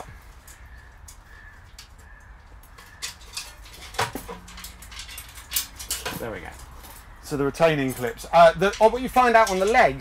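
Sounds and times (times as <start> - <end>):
small metal clicks and clinks: 2.6 - 7.1.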